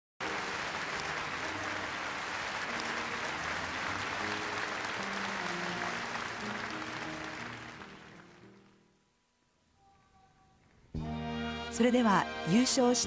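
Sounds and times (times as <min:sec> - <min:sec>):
audience applauding: 0:00.2 - 0:08.8
background music: 0:00.2 - 0:09.3, 0:11.0 - 0:13.0.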